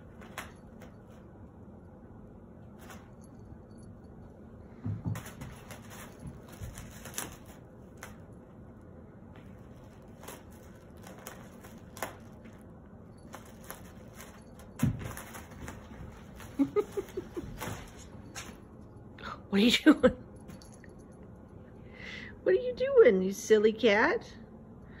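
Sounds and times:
plastic bag crinkling: 5.2s - 8.4s, 9.4s - 18.7s.

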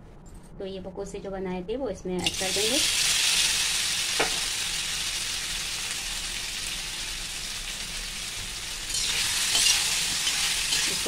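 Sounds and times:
food sizzling in hot oil: 2.2s - 11.0s.

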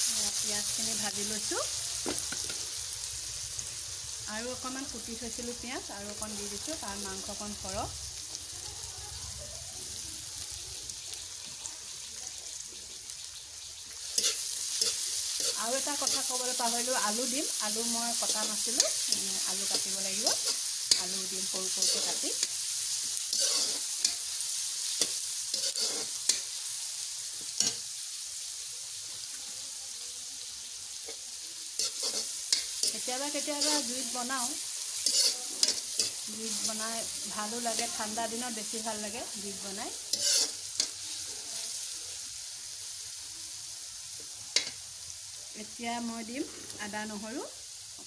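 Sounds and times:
onions sizzling in hot oil: 0.0s - 48.0s
spatula scraping pan: 14.0s - 26.5s, 31.8s - 36.8s, 40.0s - 41.7s.

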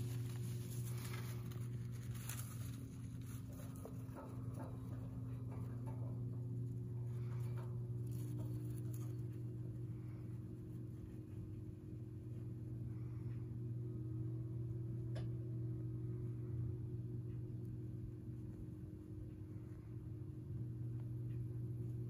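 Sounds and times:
hamster scratching and rustling: 0.0s - 12.7s
steady low hum: 0.0s - 22.0s.

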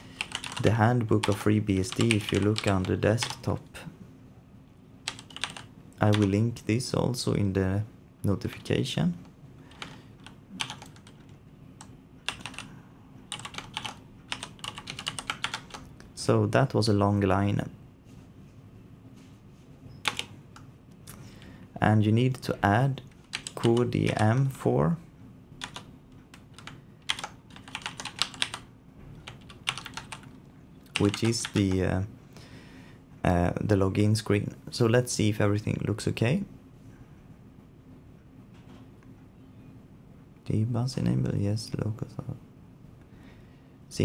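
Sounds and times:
keyboard typing: 0.1s - 3.5s, 5.0s - 6.3s, 9.7s - 12.7s, 13.3s - 16.0s, 20.0s - 20.7s, 23.0s - 24.4s, 25.6s - 31.8s.

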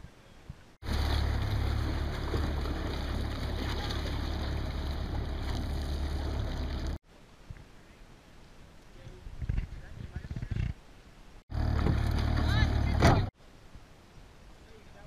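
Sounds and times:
motorboat engine idling: 0.8s - 7.0s, 11.5s - 13.3s
water splashing and lapping: 0.8s - 7.0s.

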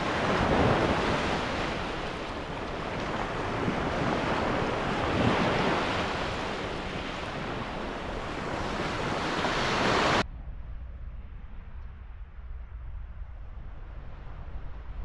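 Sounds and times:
waves washing up beach: 0.0s - 10.2s.

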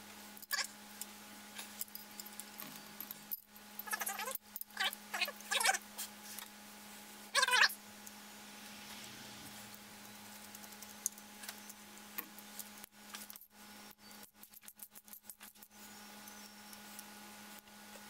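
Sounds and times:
low hum: 6.7s - 12.9s.

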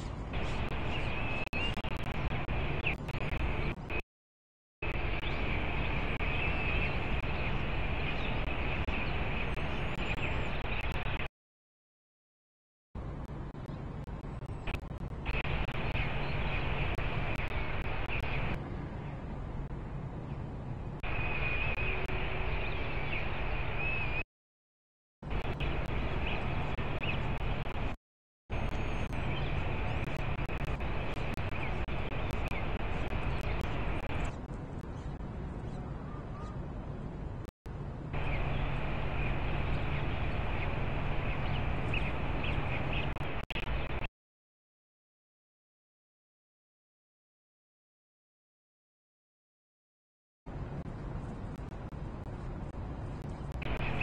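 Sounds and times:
rushing background noise: 0.0s - 4.0s, 4.8s - 11.3s, 13.0s - 24.2s, 25.2s - 44.1s, 50.5s - 54.0s
faint bird chirps: 28.5s - 36.6s.

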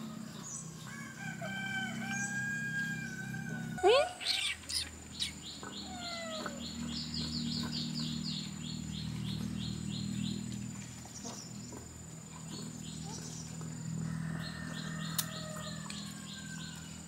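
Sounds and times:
steady low hum: 0.0s - 17.0s
small bird chirping: 3.8s - 10.5s.

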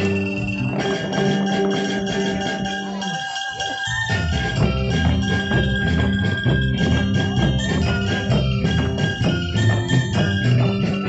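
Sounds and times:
ringing melodic line: 0.0s - 11.0s
hand drums beating fast rhythm: 4.0s - 11.0s.

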